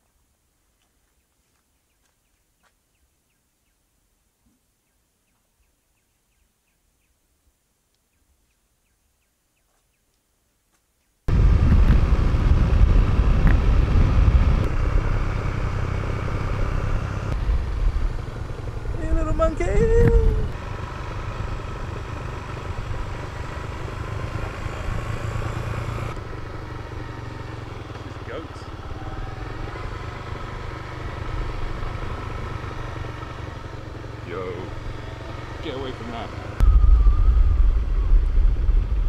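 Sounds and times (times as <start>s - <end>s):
wind buffeting microphone: 11.3s - 14.9s, 17.4s - 20.6s, 36.6s - 39.0s
road vehicle engine: 11.3s - 39.0s
rising and falling tone: 36.4s - 39.0s.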